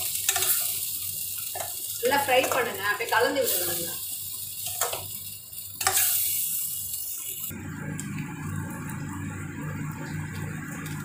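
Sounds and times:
masala sizzling in a pan: 0.0 - 11.0
spatula scraping a pan: 0.2 - 0.8, 5.8 - 6.6
low steady hum: 7.5 - 11.0.

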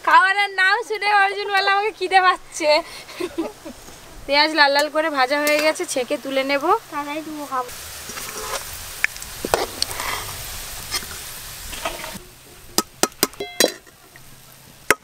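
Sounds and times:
onions sizzling in hot oil: 3.3 - 15.0
spoon clinking on steel plate: 13.4 - 13.9.

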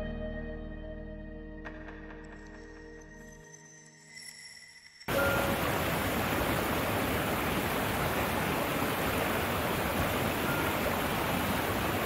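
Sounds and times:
stream rushing over rocks: 5.1 - 12.0.

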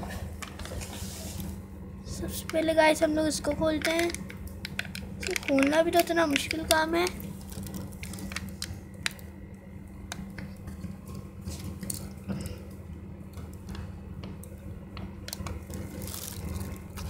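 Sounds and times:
steady low hum: 0.0 - 17.0
plastic and foil crinkling: 3.6 - 9.2, 15.3 - 17.0.

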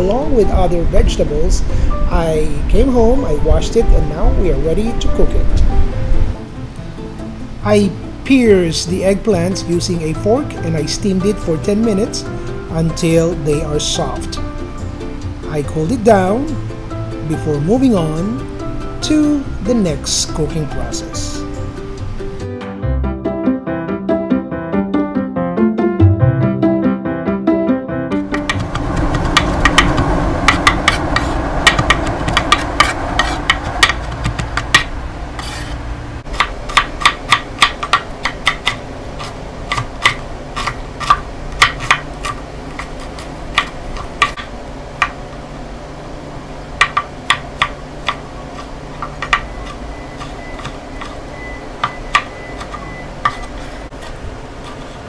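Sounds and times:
knife chopping on wooden board: 28.3 - 45.2, 46.8 - 51.2, 51.8 - 54.8.

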